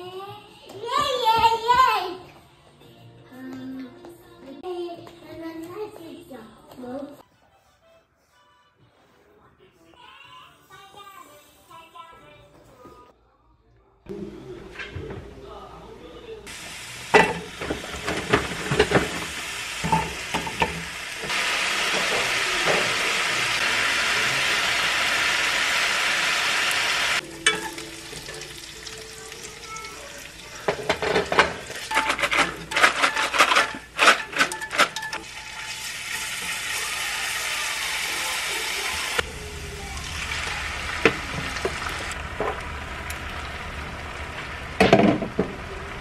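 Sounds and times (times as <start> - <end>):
pork sizzling in a frying pan: 16.5 - 32.3, 35.2 - 46.0.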